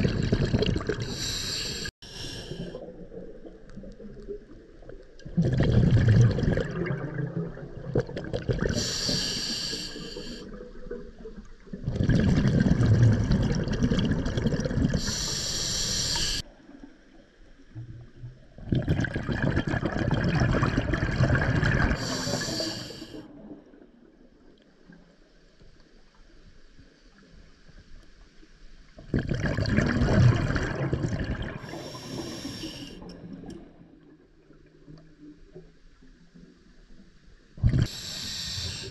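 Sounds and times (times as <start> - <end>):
exhaled bubbles underwater: 0.0 - 16.5, 17.7 - 24.1, 29.0 - 35.0, 37.6 - 38.9
regulator hiss: 1.1 - 2.7, 8.8 - 10.4, 15.0 - 16.4, 37.9 - 38.9.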